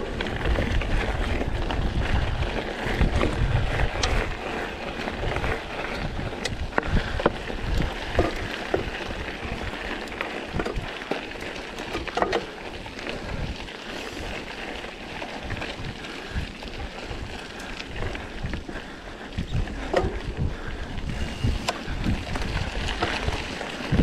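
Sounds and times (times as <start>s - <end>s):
wind rushing over microphone: 0.0s - 10.9s, 15.4s - 24.0s
bike clicks and rattles: 0.0s - 24.0s
bike tyre noise: 0.0s - 24.0s.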